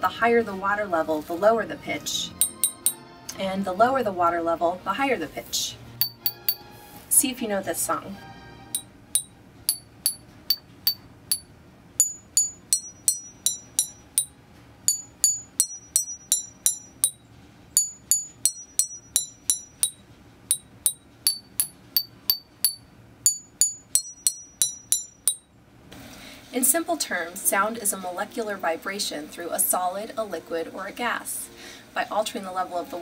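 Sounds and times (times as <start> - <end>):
spoon tapping water-filled glass tubes: 2.4 - 3.0, 6.0 - 6.6, 8.8 - 14.3, 14.9 - 17.2, 17.8 - 25.5.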